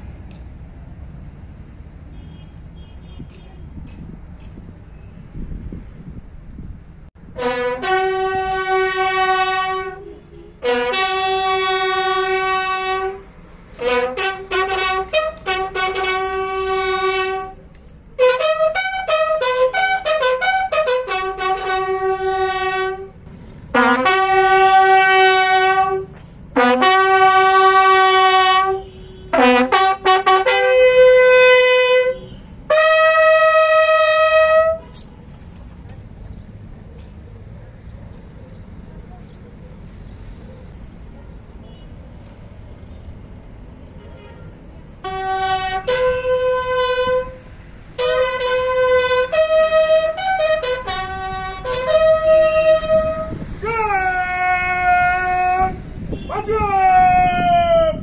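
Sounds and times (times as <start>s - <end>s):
bugles playing a call: 7.3s - 17.6s, 18.2s - 35.0s, 45.0s - 58.0s.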